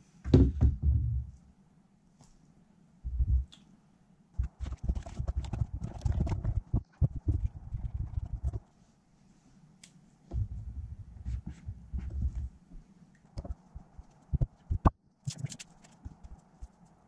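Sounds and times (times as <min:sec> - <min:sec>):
marker rubbing on cardboard: 0:04.4 - 0:08.6.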